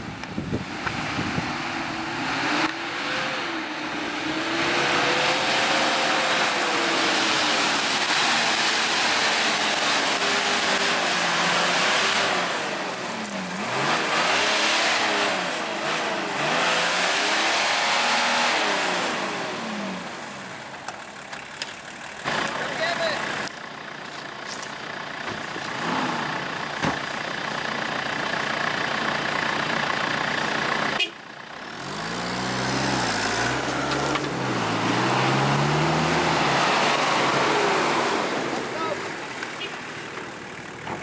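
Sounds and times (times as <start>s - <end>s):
diesel engine revving hard: 0.6s - 20.6s, 25.4s - 26.9s, 27.6s - 39.9s
truck churning through mud: 1.1s - 20.3s, 24.4s - 31.0s, 31.8s - 41.0s.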